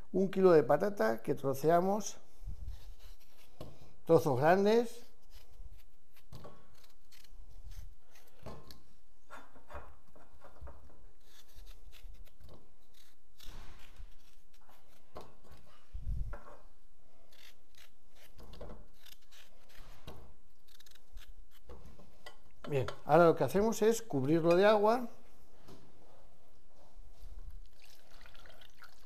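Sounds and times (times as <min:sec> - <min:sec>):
knife cutting potatoes: 0:05.1 - 0:08.8, 0:11.2 - 0:15.7, 0:17.2 - 0:21.8.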